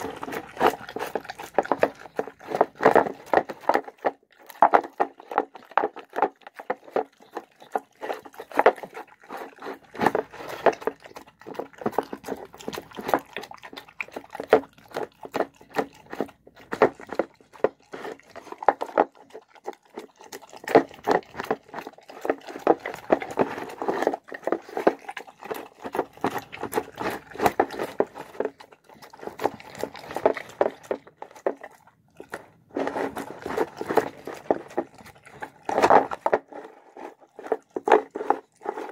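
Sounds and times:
dog chewing food: 0.0 - 38.9.

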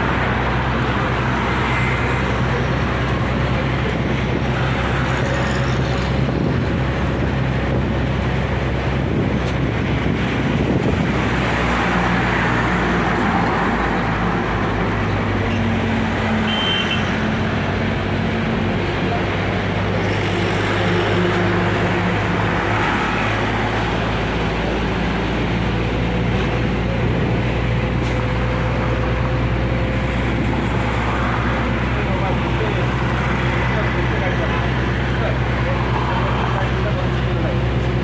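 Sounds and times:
city road traffic: 0.0 - 38.0.

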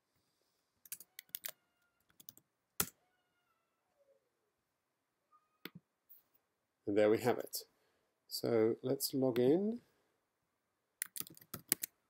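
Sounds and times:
computer keyboard typing: 0.9 - 2.9, 11.0 - 11.9.

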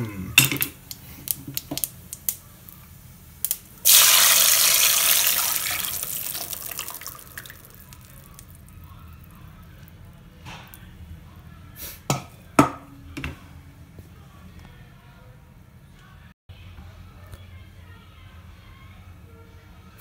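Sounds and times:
soup sizzling in hot oil: 0.9 - 8.1.

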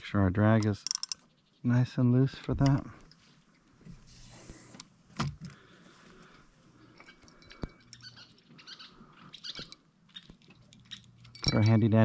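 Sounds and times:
fishing gear clicks and taps: 0.6 - 1.2.

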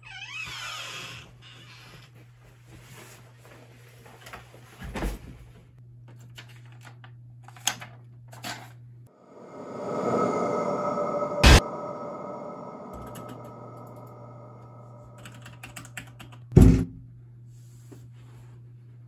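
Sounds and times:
rising musical drone: 9.1 - 15.6
steady low hum: 9.1 - 16.0.

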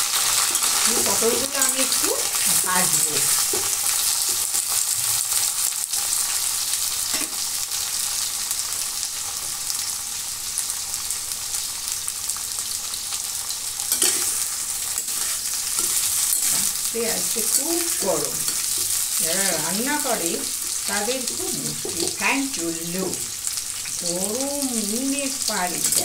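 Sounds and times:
vegetables sizzling in hot oil: 0.0 - 26.0
metal spatula scraping pan: 13.9 - 16.8.

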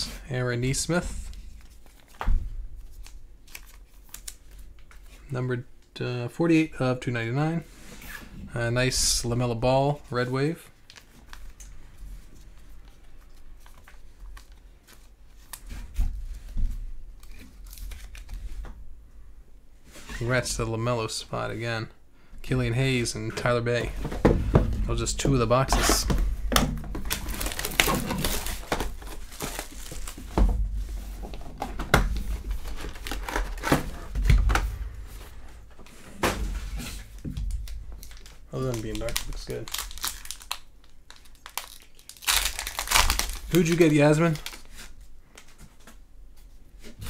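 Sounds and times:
foil packs rustling: 23.1 - 45.9
plastic scraping and handling: 23.1 - 46.0.

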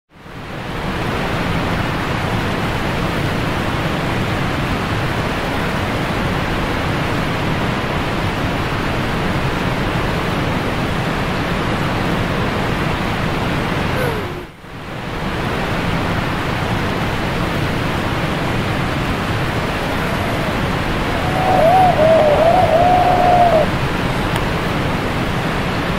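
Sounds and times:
whitewater rushing: 17.2 - 25.8.

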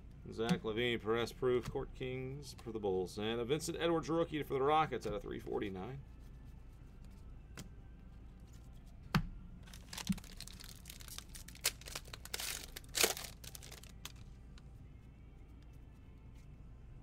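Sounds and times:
card pack wrapper tearing: 9.7 - 14.2.

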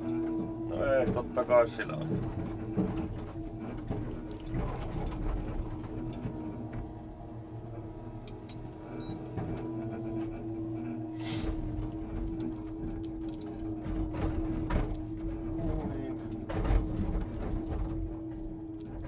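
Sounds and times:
air hiss: 11.2 - 11.5.

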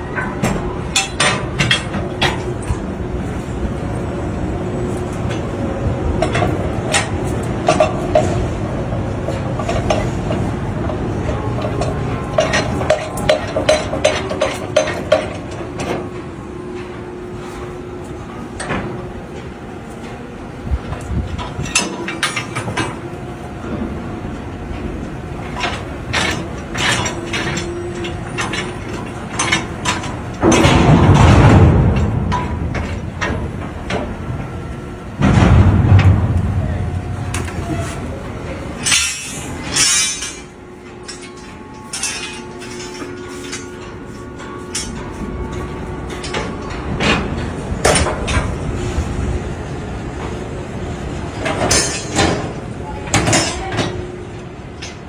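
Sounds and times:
steady low rumble: 0.0 - 53.1
metal lashing gear clanking: 25.4 - 34.6, 38.4 - 48.7, 51.4 - 54.0.

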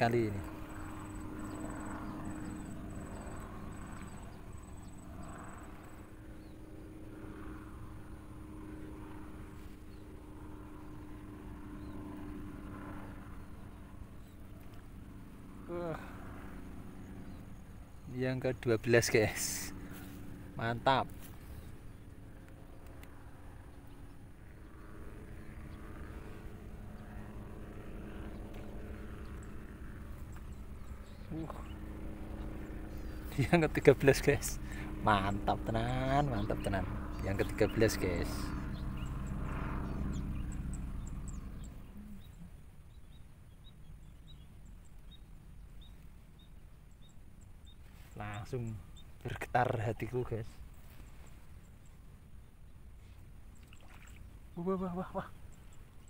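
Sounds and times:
insect trill: 0.0 - 6.0
distant motor drone: 0.0 - 56.0
faint tonal hum: 0.0 - 56.0.

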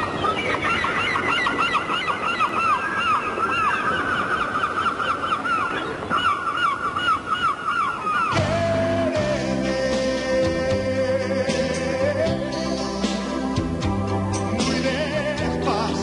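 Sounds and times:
flock of birds calling: 0.0 - 9.5
music: 8.4 - 16.0.

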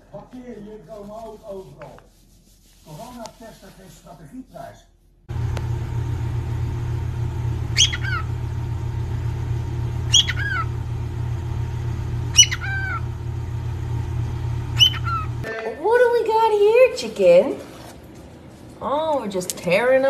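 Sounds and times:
steady low rumble: 5.3 - 15.5
cockatiel whistling: 7.7 - 8.3, 10.0 - 10.8, 12.3 - 13.0, 14.7 - 15.4.

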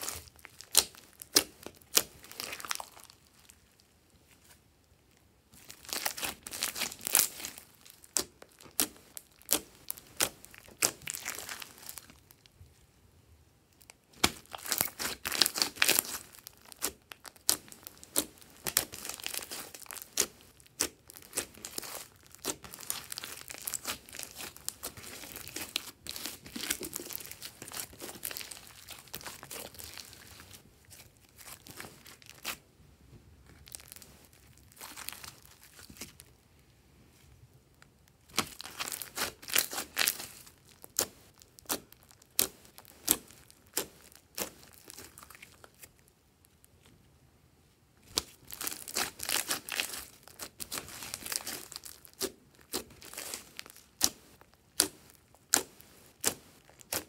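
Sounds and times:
slime crackling and clicking: 54.8 - 57.0.

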